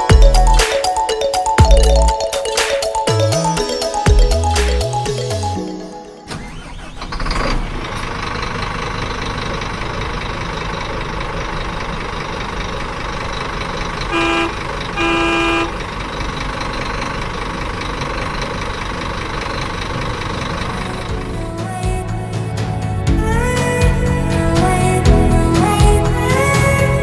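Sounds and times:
truck engine running: 0:01.4 - 0:05.6, 0:06.3 - 0:27.0
truck horn toots: 0:14.1 - 0:15.8.

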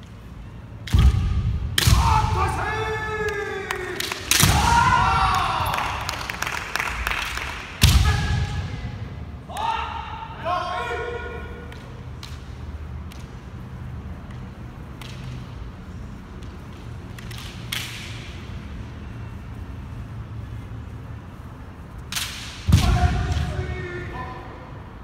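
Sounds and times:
low hall hum: 0:00.0 - 0:25.0
sharp strike crack: 0:00.9 - 0:02.6, 0:04.0 - 0:05.0
bamboo swords clacking: 0:14.2 - 0:15.7, 0:16.3 - 0:18.5, 0:22.1 - 0:22.8.

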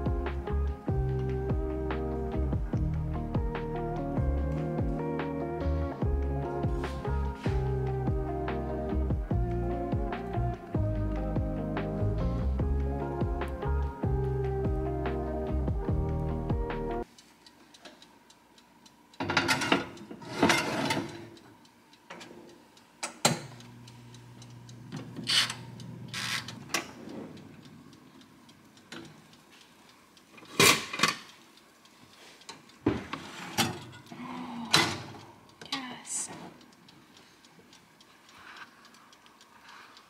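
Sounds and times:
dial timer ticking: 0:21.1 - 0:30.6, 0:35.2 - 0:40.0.

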